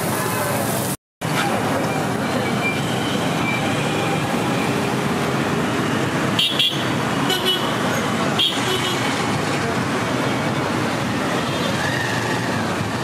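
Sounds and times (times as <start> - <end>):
road traffic noise: 0.0 - 13.0
vehicle horns honking: 6.4 - 7.8, 8.4 - 9.2.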